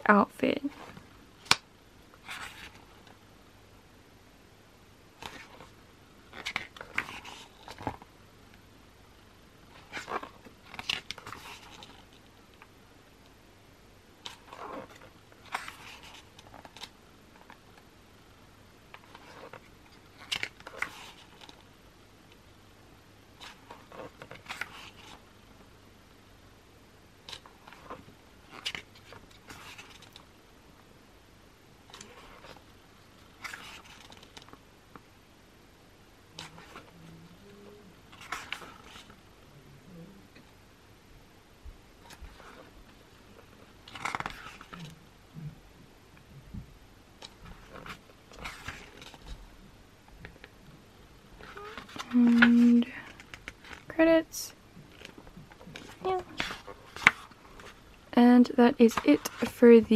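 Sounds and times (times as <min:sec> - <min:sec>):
book pages turning: 0:02.2 - 0:03.2, 0:05.2 - 0:08.1, 0:09.7 - 0:12.7, 0:14.2 - 0:17.9, 0:18.9 - 0:21.7, 0:23.4 - 0:25.2, 0:27.2 - 0:30.3, 0:31.9 - 0:35.0, 0:36.4 - 0:37.1, 0:38.1 - 0:39.2, 0:42.0 - 0:45.0, 0:47.2 - 0:49.5, 0:51.4 - 0:53.9, 0:54.9 - 0:57.9, 0:58.9 - 0:59.8.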